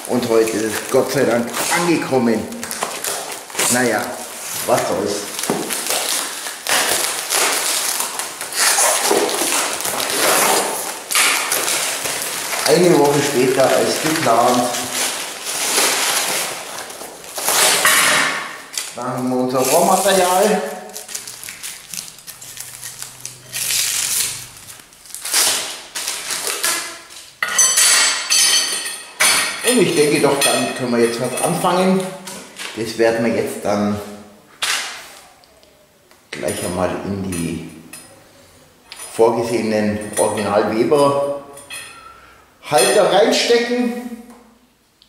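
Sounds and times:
plastic film and cardboard tearing: 0.0s - 27.3s
plastic wrapping crinkling: 0.0s - 27.4s
metal tubes clinking: 27.4s - 31.7s, 38.9s - 43.1s.

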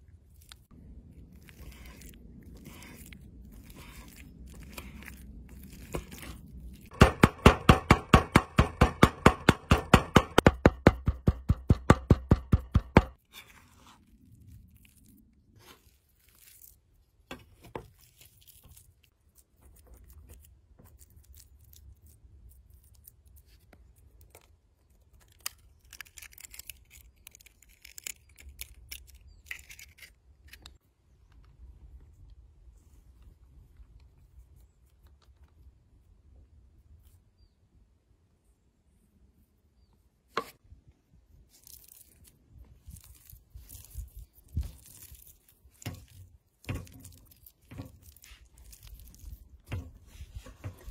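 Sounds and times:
scraping minced meat: 0.6s - 6.9s, 41.6s - 50.9s
knife chopping on wooden board: 6.9s - 13.2s.

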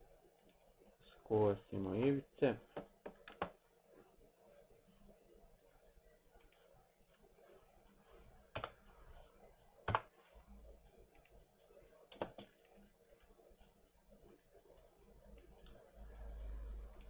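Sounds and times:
computer mouse clicks: 8.5s - 8.9s.

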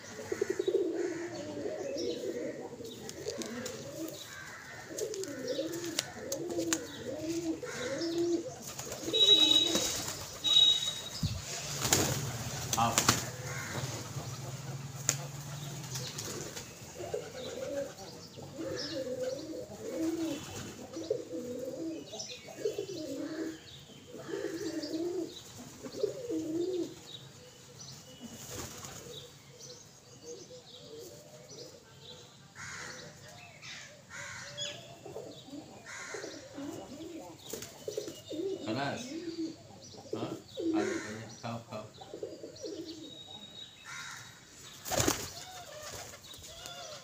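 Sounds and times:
pigeons cooing: 0.0s - 47.0s
wings flapping: 8.6s - 18.0s, 28.4s - 29.1s, 44.8s - 46.5s.

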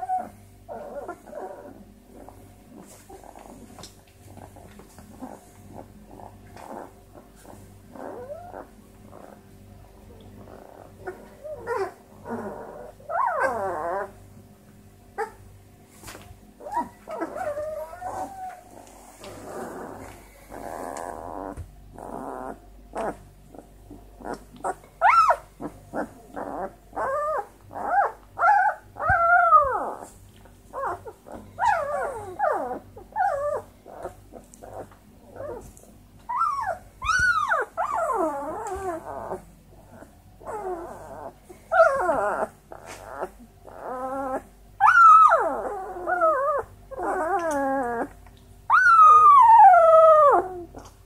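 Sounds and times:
puppies whining and squealing: 0.0s - 9.5s, 10.1s - 14.2s, 15.2s - 15.4s, 16.6s - 51.0s.

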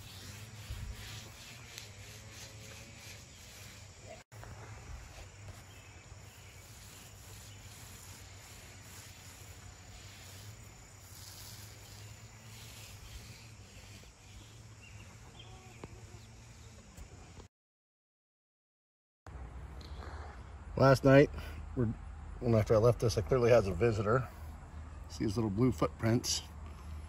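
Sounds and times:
insects calling: 0.1s - 17.3s.

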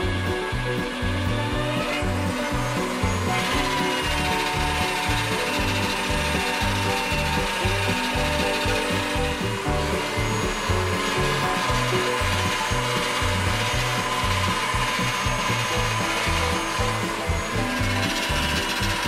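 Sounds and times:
background music with bass: 0.0s - 19.0s
pasta machine motor running: 0.0s - 19.0s.

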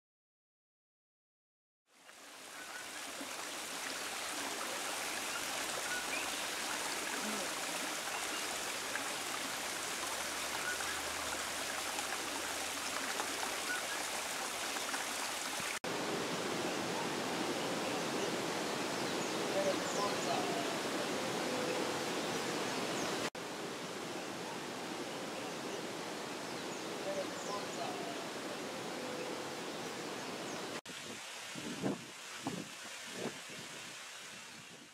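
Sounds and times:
running water rushing: 1.9s - 34.9s.

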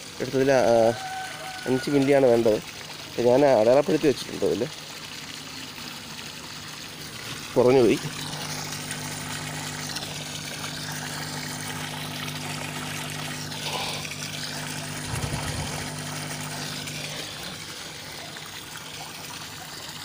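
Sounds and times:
water trickling into a pond: 0.0s - 20.0s
low steady hum: 7.2s - 19.2s.

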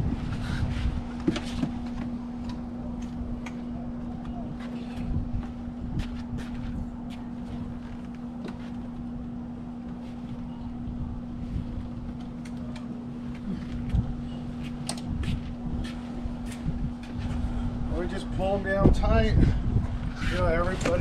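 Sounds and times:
wind buffeting microphone: 0.0s - 8.4s, 10.4s - 12.6s, 13.8s - 21.0s
electric fan humming: 0.0s - 21.0s.

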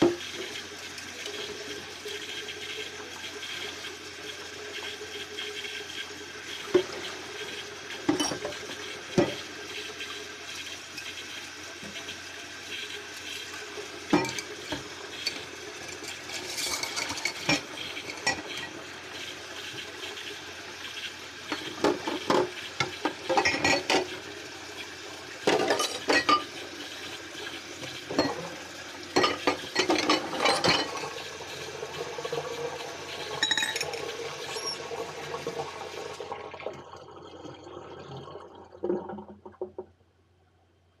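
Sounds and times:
running water hiss: 0.0s - 36.1s
dishes and cutlery clinking: 25.5s - 26.5s, 29.2s - 31.0s, 33.4s - 34.8s.

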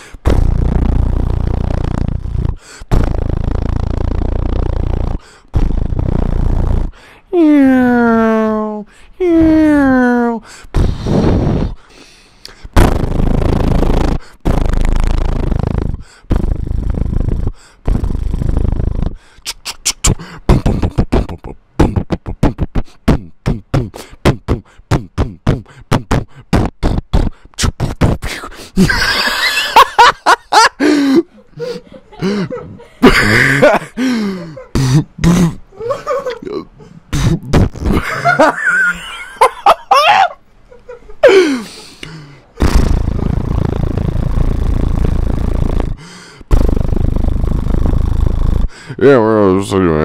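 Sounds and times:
beatbox pops and clicks: 0.0s - 7.0s, 10.8s - 11.8s, 12.4s - 28.5s, 37.2s - 38.0s, 42.0s - 48.8s
beatbox buzzing blasts: 0.0s - 7.1s, 10.7s - 31.0s, 31.6s - 34.2s, 34.8s - 35.6s, 37.1s - 39.8s, 41.6s - 49.0s.

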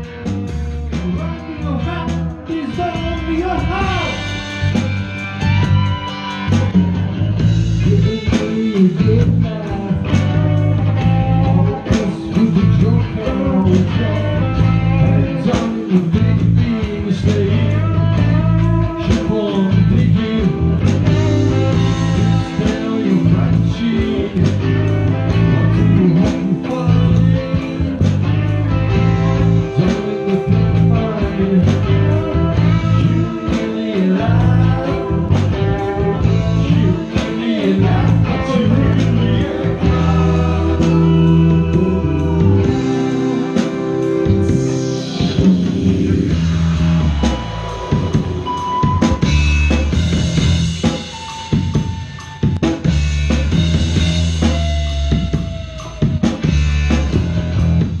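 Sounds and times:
bass: 0.0s - 58.0s
drums: 0.0s - 58.0s
electric guitars: 0.0s - 58.0s
person singing: 0.9s - 4.8s, 7.8s - 49.5s.

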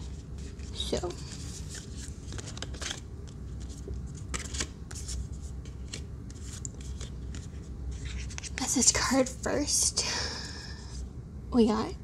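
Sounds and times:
paper rustling and scraping: 0.0s - 8.8s.

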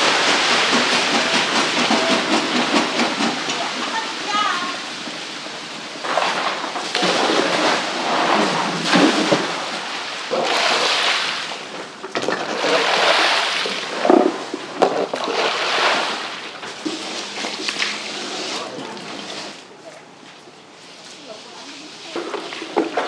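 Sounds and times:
wet fish sliding and splashing: 12.4s - 14.1s, 14.9s - 19.7s.

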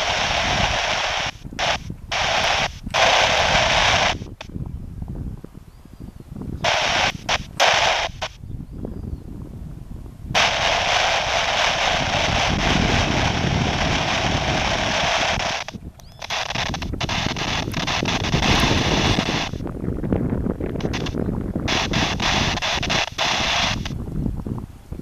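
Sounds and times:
radio static hiss: 0.0s - 4.6s, 6.6s - 8.5s, 10.3s - 24.1s
static crackles: 0.0s - 4.6s, 6.6s - 8.4s, 10.3s - 24.2s.

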